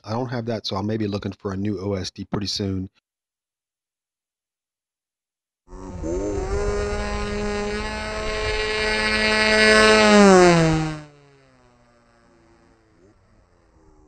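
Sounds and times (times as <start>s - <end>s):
buzzing electric motor and propeller: 5.7s - 14.0s.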